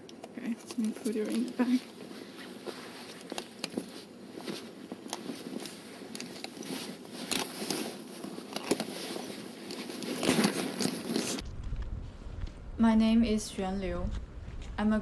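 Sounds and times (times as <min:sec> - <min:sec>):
bag fabric rustling: 0:01.0 - 0:11.4
loud scuffle: 0:01.3 - 0:11.4.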